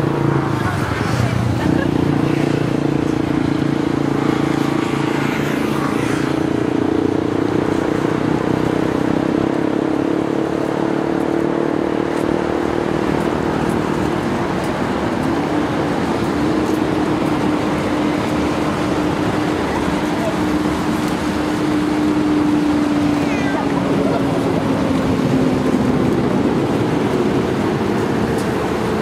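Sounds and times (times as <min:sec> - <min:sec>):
street traffic engine hum: 0:00.0 - 0:29.0.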